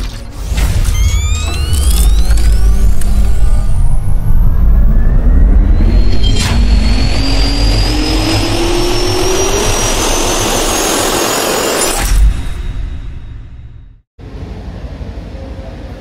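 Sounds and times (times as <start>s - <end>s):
sharp hit: 0.3s - 14.0s
jet turbine spooling up: 1.0s - 13.2s.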